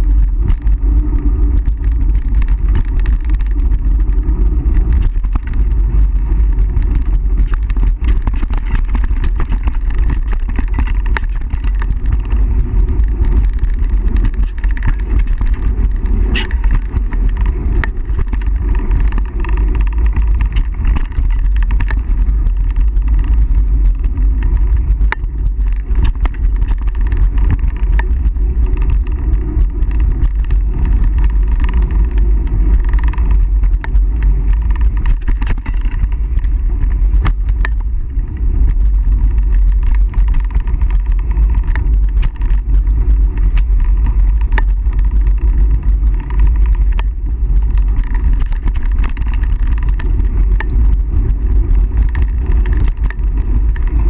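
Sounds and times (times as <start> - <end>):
bike knocks and rattles: 0.0 - 54.0
bike tyres rolling over dirt: 0.0 - 54.0
wind buffeting microphone: 0.0 - 54.0.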